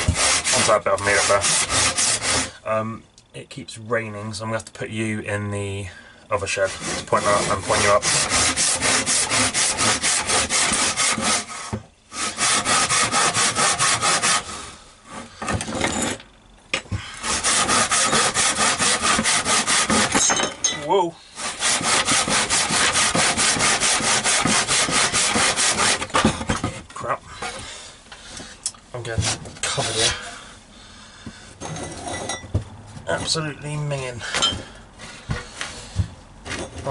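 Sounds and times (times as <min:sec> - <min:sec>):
handsaw cutting wood: 0:00.0 - 0:02.6, 0:06.4 - 0:16.2, 0:17.2 - 0:20.3, 0:21.4 - 0:26.5, 0:29.2 - 0:30.2.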